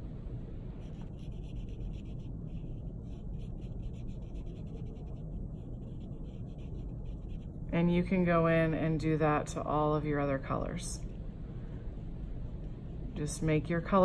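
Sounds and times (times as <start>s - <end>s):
low steady hum: 0.0s - 14.0s
scratchy paintbrush strokes on paper: 0.8s - 7.7s.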